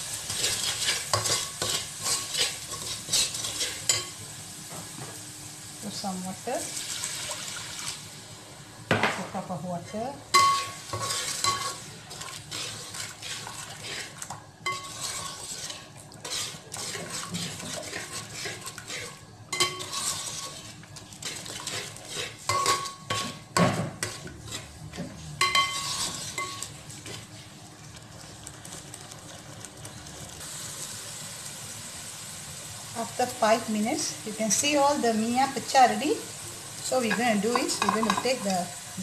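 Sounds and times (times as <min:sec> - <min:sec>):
spatula scraping a pot: 0:00.2 - 0:04.1, 0:09.9 - 0:27.4
metal clink on pot: 0:10.3 - 0:11.8, 0:19.5 - 0:20.2, 0:22.5 - 0:23.2, 0:37.0 - 0:38.6.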